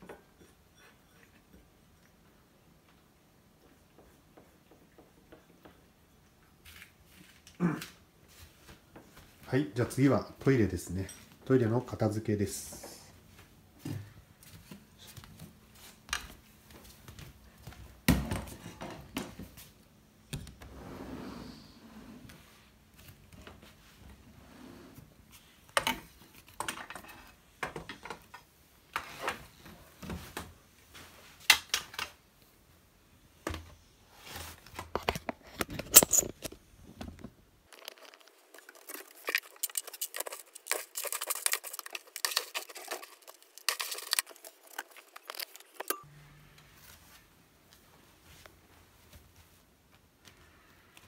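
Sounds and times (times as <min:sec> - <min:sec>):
cat litter scraping and rattling: 0:37.7 - 0:45.9.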